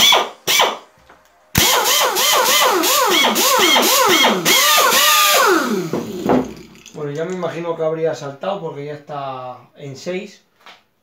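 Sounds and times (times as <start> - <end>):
pneumatic tool motor whine: 0.0 - 0.8, 1.6 - 6.4.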